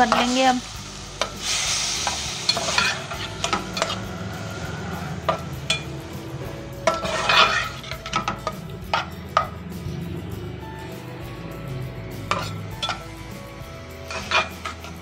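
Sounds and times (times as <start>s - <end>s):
sizzling in hot oil: 0.0s - 15.0s
metal spatula scraping pan: 2.0s - 6.2s, 6.8s - 9.6s, 12.2s - 13.2s, 14.0s - 15.0s.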